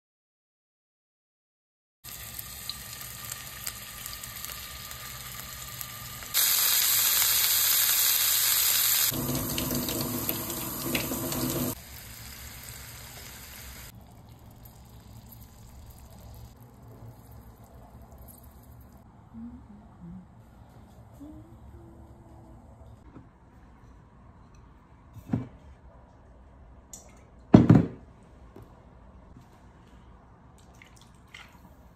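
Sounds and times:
faucet water gushing: 2.1 - 16.6
meatballs frying in oil: 2.1 - 19.0.

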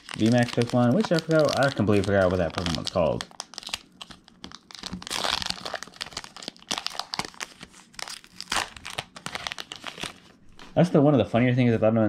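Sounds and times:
foil wrapper tearing open: 0.0 - 10.3
foil wrapper crinkling: 0.0 - 10.8.

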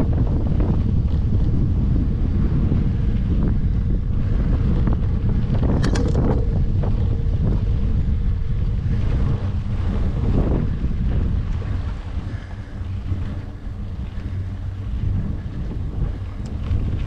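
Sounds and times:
wind buffeting microphone: 0.0 - 17.0
small rattles and clicks: 4.8 - 8.0.

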